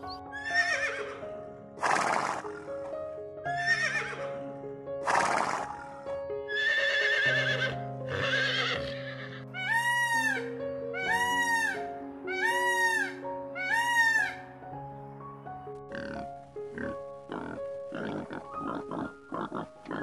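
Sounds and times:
peacock crying: 0.0 - 1.2, 3.6 - 4.2, 6.5 - 14.6
background music: 0.0 - 20.0
horses neighing: 0.4 - 1.2, 1.8 - 2.7, 5.0 - 10.3, 16.0 - 20.0.

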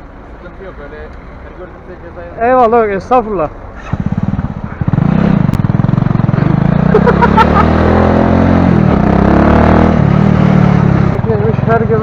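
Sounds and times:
motorcycle engine revving: 3.8 - 12.0.

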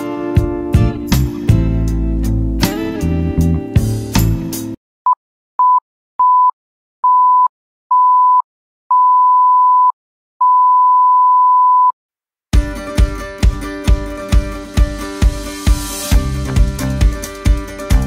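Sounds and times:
background music: 0.0 - 4.8, 12.6 - 18.0.

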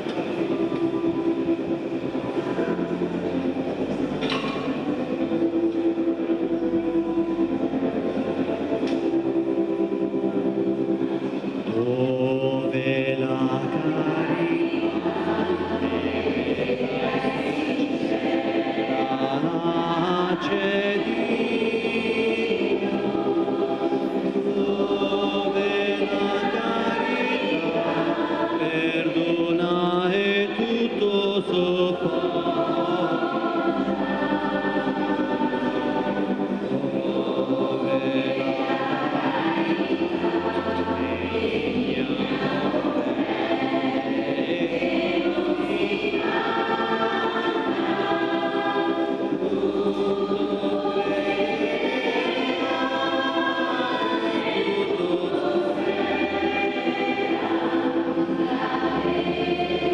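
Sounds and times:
choir singing a hymn: 0.0 - 59.9.

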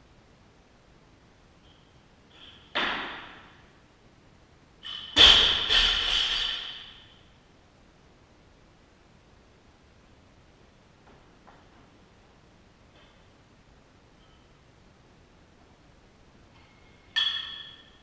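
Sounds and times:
metal clanging impacts: 4.8 - 7.2, 16.6 - 18.0
high metallic ringing: 14.1 - 14.6, 16.5 - 18.0.

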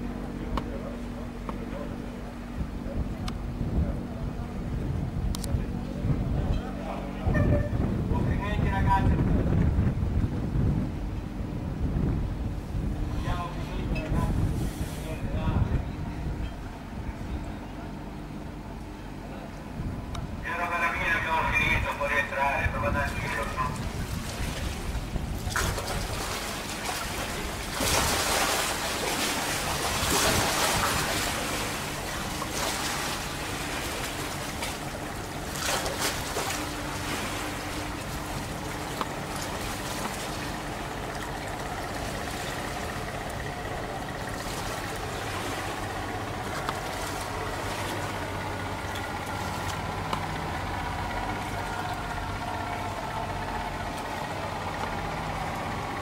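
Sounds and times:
low motor hum: 0.0 - 56.0
water rushing and lapping: 20.4 - 56.0.

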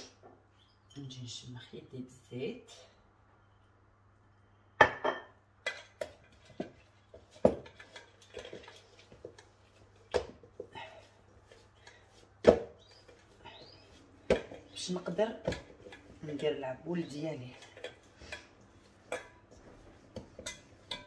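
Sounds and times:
metal bowl knocking on countertop: 4.8 - 5.3.

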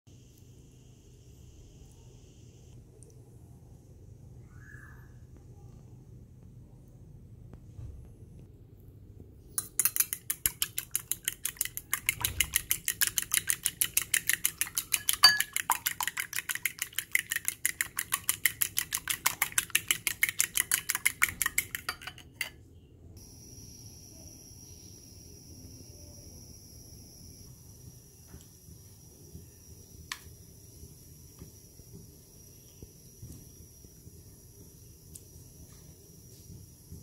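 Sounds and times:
eggs beaten in glass bowl: 9.6 - 22.6.

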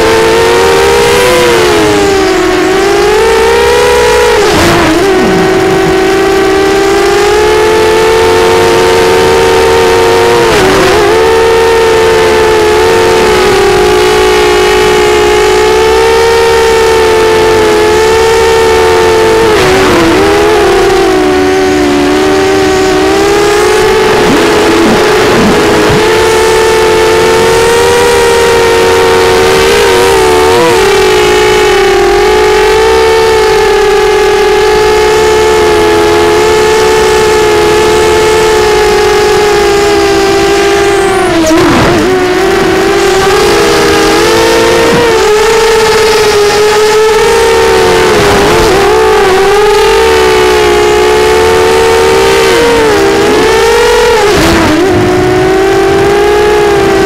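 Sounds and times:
quadcopter motors whining: 0.0 - 33.3, 34.7 - 57.0.

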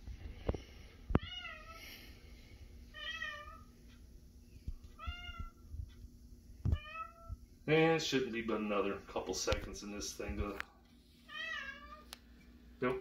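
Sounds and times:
cat meowing: 1.2 - 1.8, 2.9 - 3.7, 6.7 - 7.4, 11.3 - 12.1.

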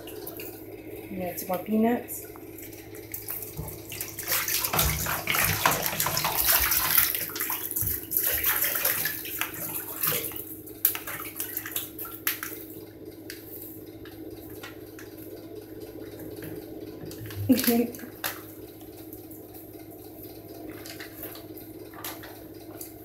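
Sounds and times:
water splashing in bathtub: 2.2 - 12.7, 17.0 - 18.5.

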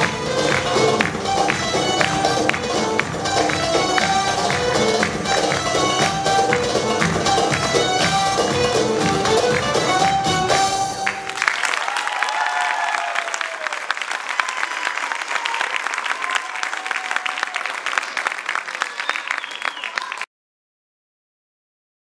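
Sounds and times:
dance music: 0.0 - 11.4
audience applauding: 0.0 - 20.3.

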